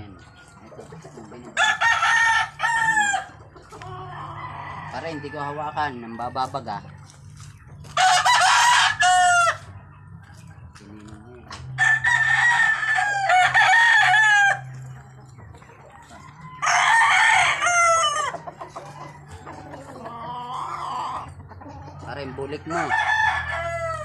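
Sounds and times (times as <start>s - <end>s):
roosters crowing: 0.0s - 6.9s, 7.8s - 10.4s, 11.0s - 24.0s.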